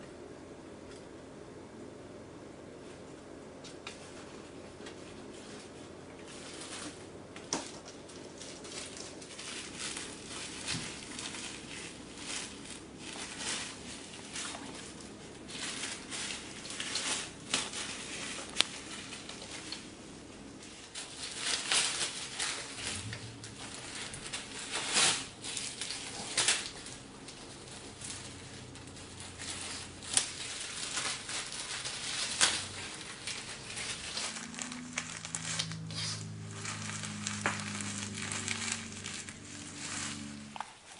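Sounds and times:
bag crinkling and rustling: 3.7 - 40.9.

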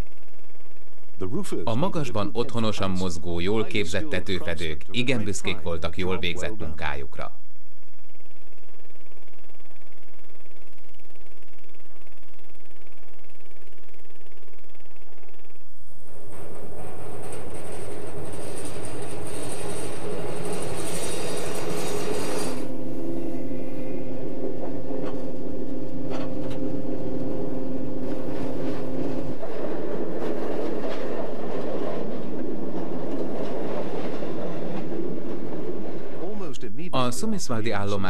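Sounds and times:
steady humming tone: 0.0 - 38.0
train wheels clacking over rails: 16.2 - 22.8.

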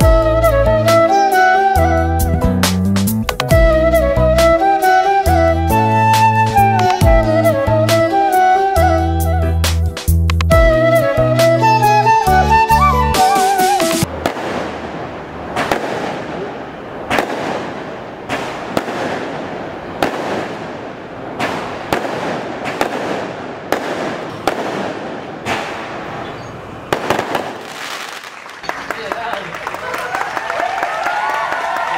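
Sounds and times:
firework bangs: 14.0 - 29.4.

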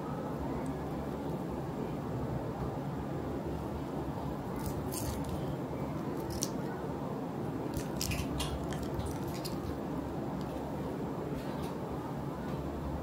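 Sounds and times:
foil wrapper crinkling: 4.6 - 6.6, 7.7 - 9.8.

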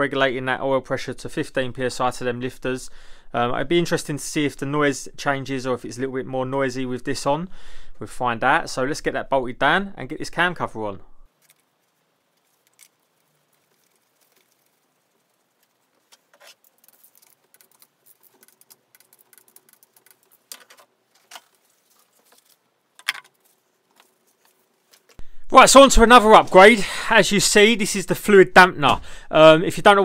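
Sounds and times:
clicks and rattles of hand tools: 16.1 - 25.2.

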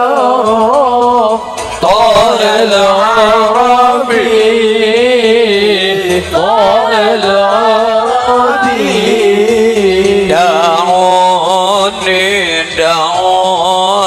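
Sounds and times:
person singing ornamented notes: 0.0 - 14.0.

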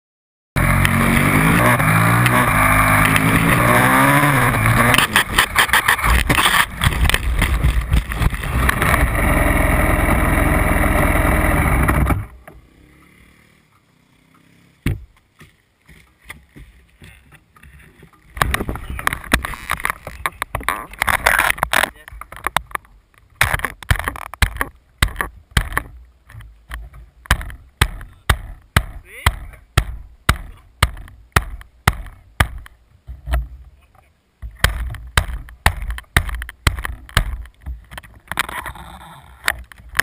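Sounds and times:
motorcycle engine revving: 0.6 - 14.9
motorcycle crashing with clattering: 0.7 - 9.2
rustling and clicking: 4.6 - 9.0, 15.1 - 28.2.

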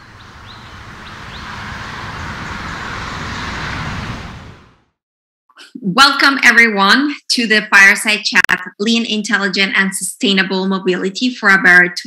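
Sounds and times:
highway traffic rushing: 0.0 - 5.0.

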